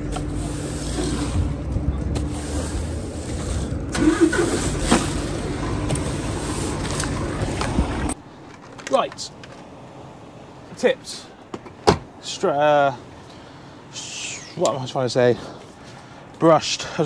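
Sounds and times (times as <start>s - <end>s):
push broom scraping wooden deck: 0.0s - 8.1s
engine hum: 0.0s - 12.2s.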